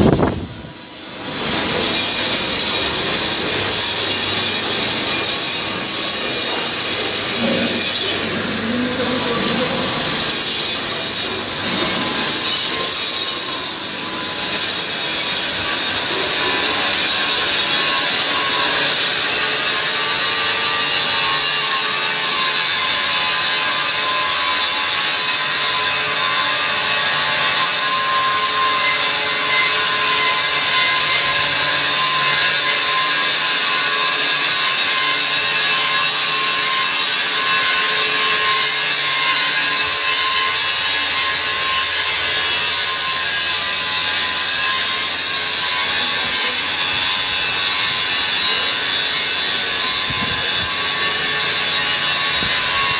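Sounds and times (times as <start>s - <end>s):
workshop machinery hiss: 0.0s - 52.9s.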